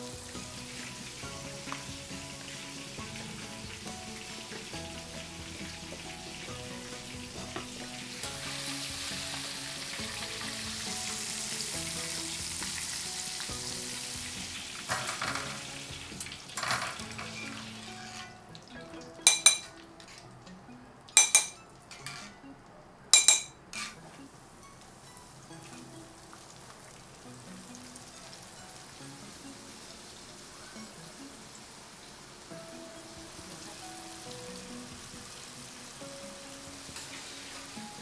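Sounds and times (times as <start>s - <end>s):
oil sizzling: 0.0s - 20.5s, 21.1s - 22.4s, 23.2s - 38.0s
soft background music: 0.0s - 38.0s
sharp metallic clinks: 21.2s - 22.1s, 23.2s - 23.6s.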